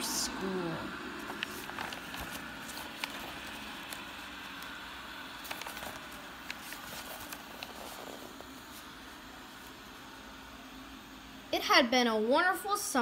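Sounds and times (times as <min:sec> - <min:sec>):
book pages turning: 0:01.1 - 0:09.9.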